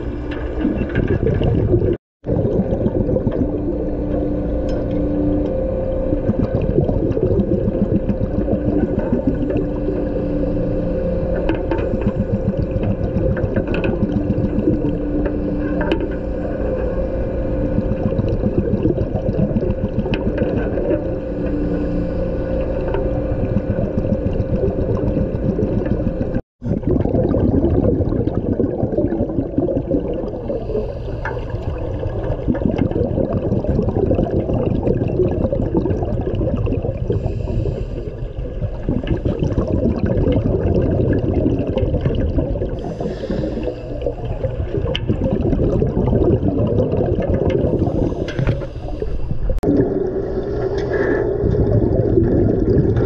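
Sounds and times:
boat machinery humming: 2.7 - 26.4, 42.7 - 45.2.

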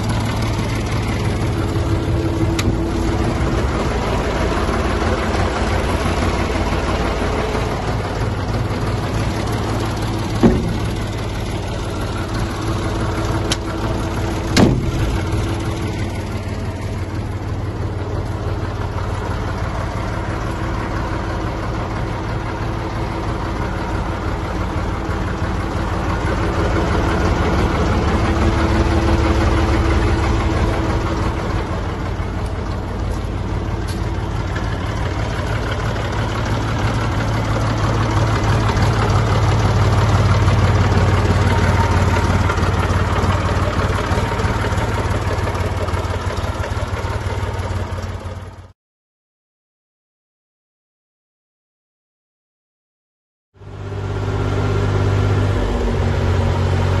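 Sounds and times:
tractor engine idling: 0.0 - 48.7, 53.6 - 57.0
sharp knocks: 10.2 - 11.6, 14.5 - 15.5.

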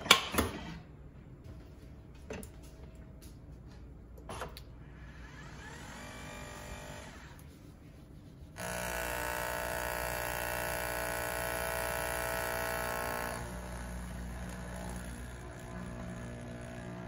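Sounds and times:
capsule machine whirring: 4.3 - 7.5, 8.6 - 17.0.

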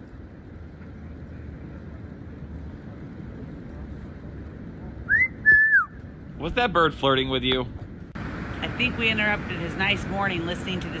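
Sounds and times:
low background rumble: 0.0 - 11.0
parrot wolf whistle: 5.1 - 6.0.

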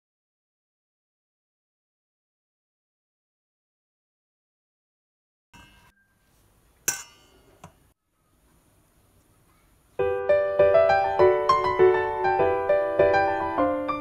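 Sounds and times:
kitchenware clinking: 5.6 - 7.8
gentle piano tune: 10.0 - 14.0.

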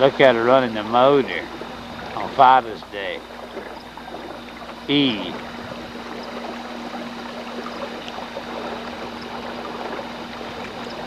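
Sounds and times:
electric motor humming: 0.0 - 11.0
water washing: 0.0 - 11.0.

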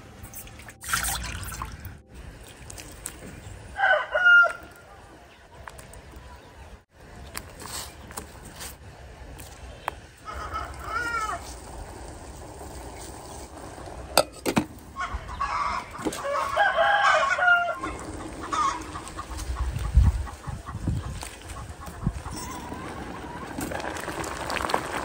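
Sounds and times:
rooster crowing: 3.8 - 4.8, 15.4 - 18.8.

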